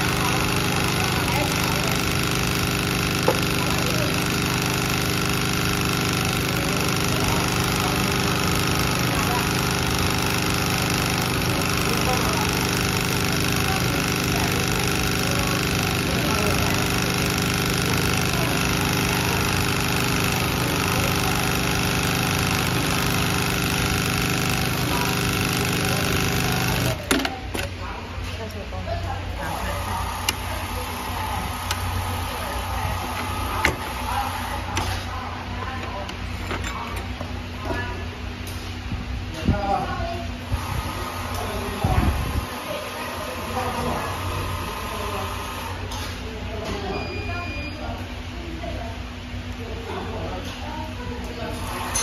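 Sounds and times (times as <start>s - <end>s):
sewing machine running: 0.0s - 27.6s, 29.3s - 35.1s, 40.6s - 45.9s.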